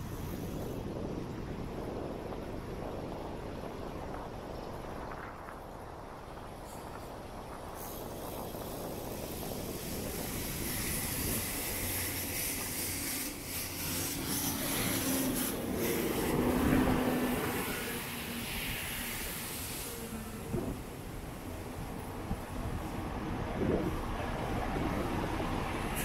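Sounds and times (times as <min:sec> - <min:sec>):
traffic noise: 0:00.0 - 0:01.2, 0:02.7 - 0:26.0
vehicle passing by: 0:13.9 - 0:20.8.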